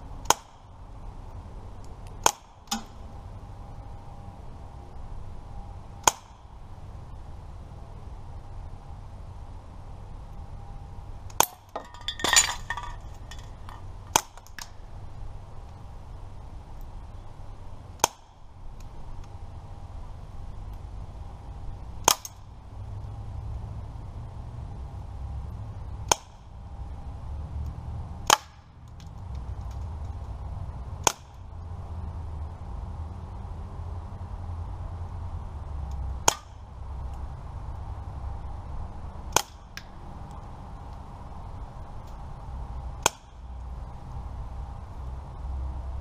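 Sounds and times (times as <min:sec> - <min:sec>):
bb gun firing crack: 0:02.2 - 0:03.0, 0:06.0 - 0:06.4.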